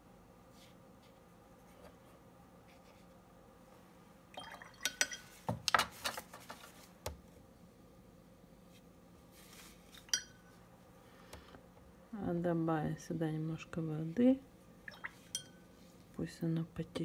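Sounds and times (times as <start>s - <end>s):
brush clinking in glass jar: 10.0s - 10.5s, 15.0s - 15.6s.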